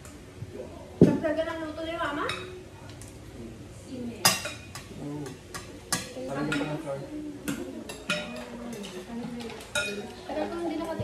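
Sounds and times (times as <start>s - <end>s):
cutlery clinking on plates: 4.2s - 10.5s.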